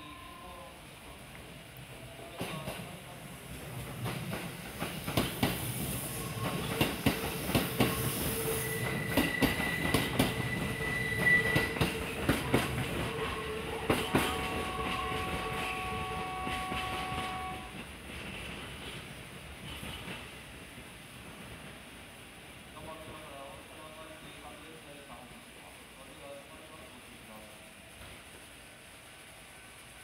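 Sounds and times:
train wheels clacking over rail joints: 3.8s - 5.8s, 6.4s - 20.3s
ringing rail tones: 6.1s - 17.7s
high wheel squeal: 7.9s - 12.2s.

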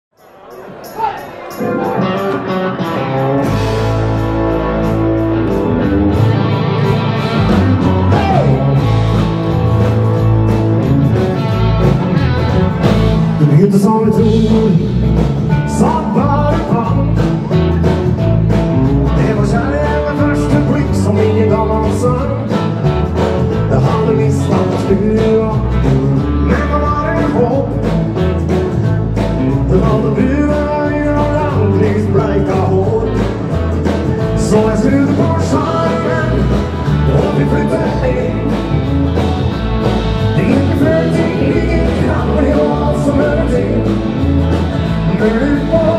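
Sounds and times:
electric guitars: 0.4s - 45.9s
bass guitar: 0.8s - 45.9s
drum kit: 0.8s - 45.9s
man singing: 8.0s - 8.9s, 13.2s - 17.7s, 19.0s - 22.9s, 23.5s - 28.1s, 29.4s - 39.0s, 40.2s - 45.9s.

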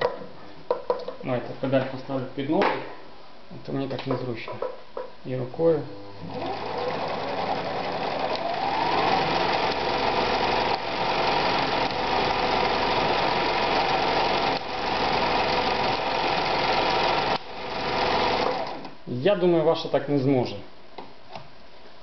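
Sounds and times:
sewing machine running: 6.2s - 18.9s.

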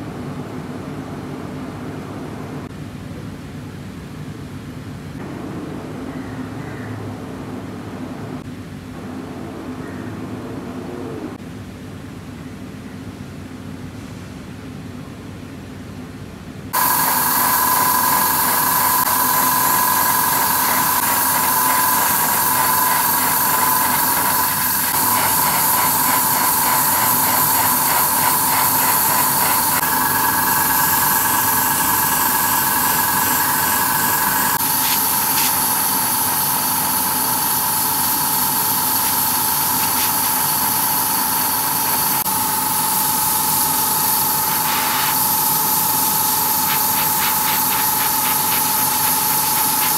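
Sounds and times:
airbrush spraying hiss: 16.8s - 49.9s.

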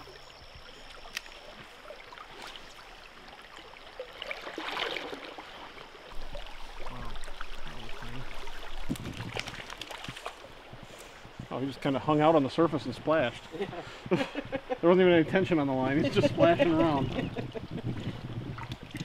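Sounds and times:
river water flowing: 0.0s - 14.0s.

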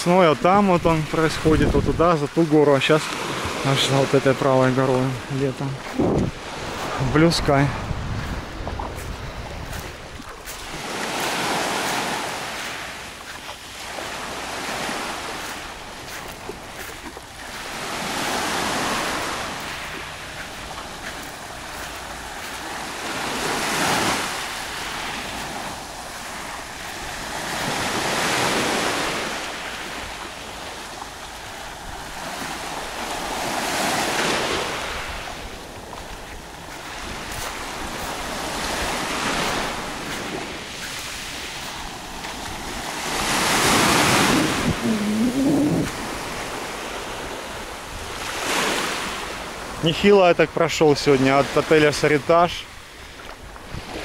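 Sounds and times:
waves washing up a pebbly shore: 0.3s - 50.0s.

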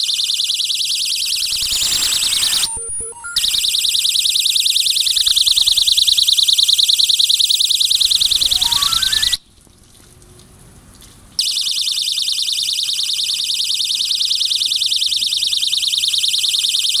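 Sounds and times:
high-pitched warbling alarm tone: 0.8s - 4.0s, 7.3s - 9.4s
faint stepped beeps: 1.6s - 3.4s, 7.4s - 9.4s.

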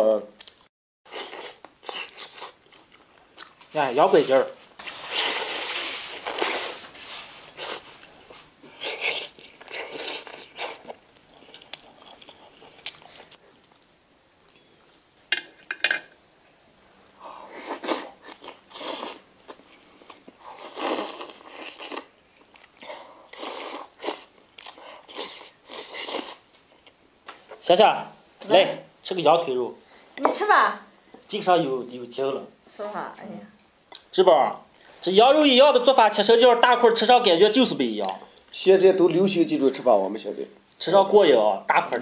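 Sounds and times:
people chewing meat: 0.4s - 3.6s, 7.4s - 15.0s, 17.4s - 27.0s.

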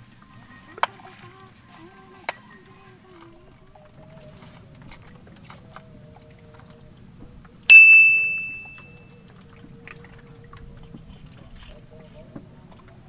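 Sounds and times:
bite alarm bell ringing: 7.7s - 9.0s.

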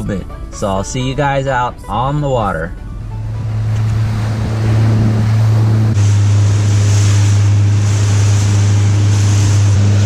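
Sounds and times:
motorboat engine drone: 0.0s - 10.0s
wind: 0.0s - 10.0s
rushing water: 2.6s - 10.0s.

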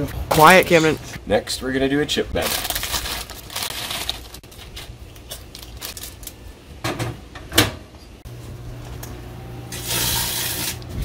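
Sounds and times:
microwave running hum: 4.1s - 11.0s.

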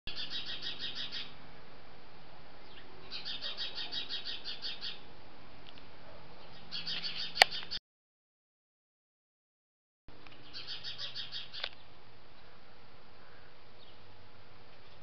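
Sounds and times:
small birds chirping: 0.1s - 1.4s, 2.6s - 5.1s, 5.7s - 7.8s, 10.1s - 15.0s.

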